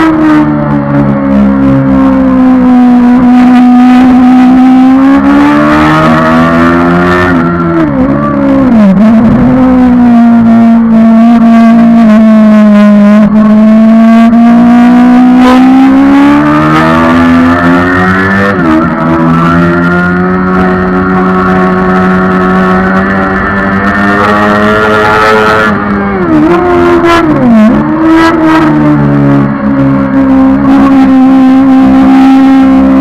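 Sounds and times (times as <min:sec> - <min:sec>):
motorcycle engine revving high: 0:00.0 - 0:33.0.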